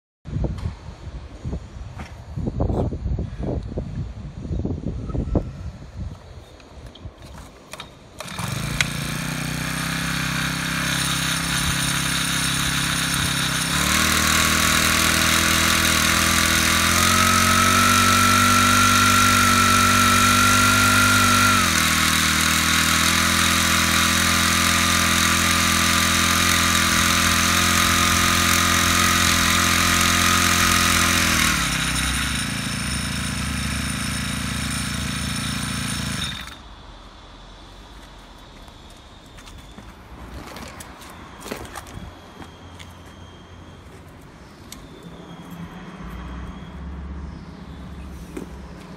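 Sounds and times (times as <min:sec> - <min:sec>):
small engine idling and revving: 0:07.7 - 0:40.0.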